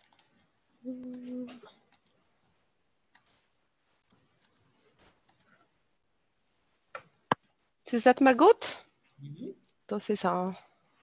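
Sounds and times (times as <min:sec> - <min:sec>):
computer mouse clicks: 0:01.0 - 0:02.2, 0:03.1 - 0:03.4, 0:04.0 - 0:05.6.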